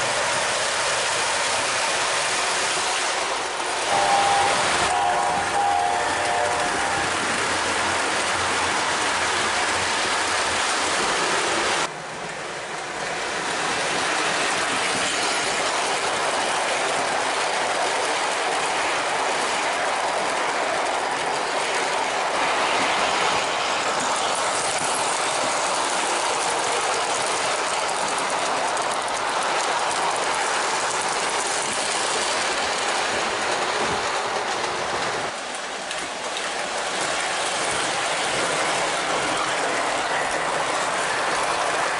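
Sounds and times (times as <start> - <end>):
model train wheels clattering: 13.4 - 41.9.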